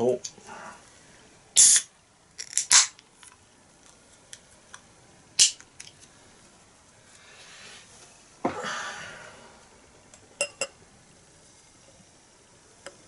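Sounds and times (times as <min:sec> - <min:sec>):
gas hissing from can: 0:01.6 - 0:01.9
beer can opening: 0:01.6 - 0:03.0.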